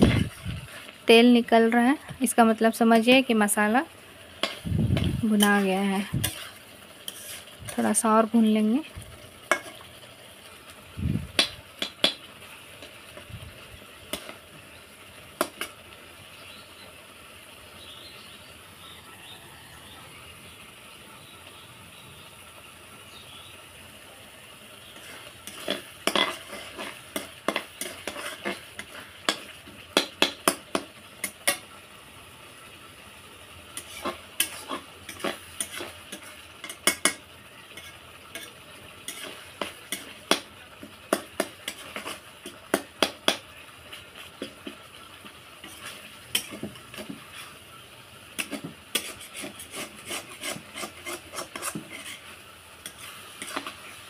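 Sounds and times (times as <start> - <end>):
low oil sizzle: 0.0 - 54.0
spoon scraping a pan: 4.3 - 10.0, 14.1 - 14.4, 15.4 - 15.8, 24.8 - 31.7, 33.7 - 54.0.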